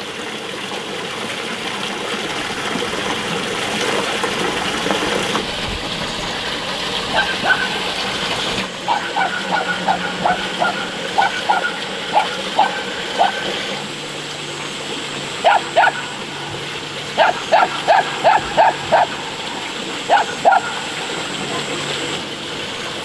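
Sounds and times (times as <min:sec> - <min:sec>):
dog yapping: 0:07.1 - 0:07.9, 0:08.8 - 0:13.9, 0:15.4 - 0:16.3, 0:17.2 - 0:21.0.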